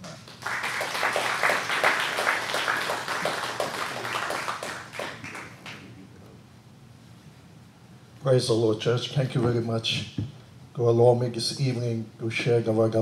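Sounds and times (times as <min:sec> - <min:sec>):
congregation applauding: 0:00.0 - 0:06.0.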